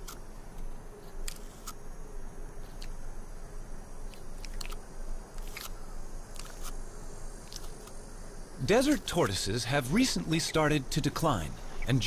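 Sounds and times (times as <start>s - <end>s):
tortoise chewing cactus: 5.4s - 6.8s.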